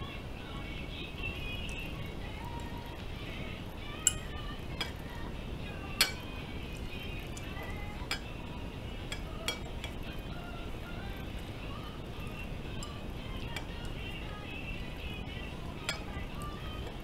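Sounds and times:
chopsticks clinking on ceramic bowl: 4.0s - 5.0s, 6.0s - 6.3s, 9.1s - 10.0s.

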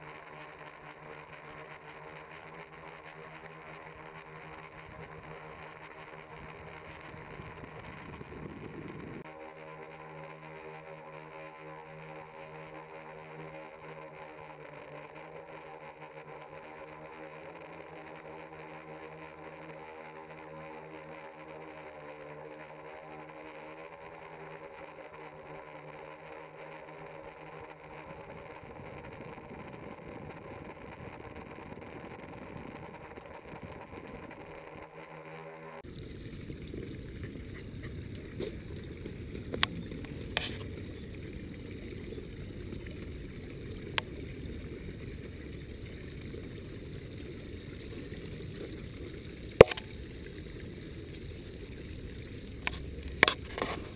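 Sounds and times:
drone propellers humming: 0.0s - 53.9s.

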